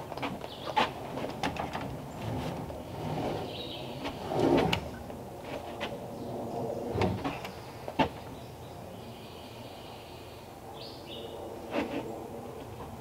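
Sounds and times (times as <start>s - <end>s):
wooden knocks and scraping: 0.1s - 6.0s.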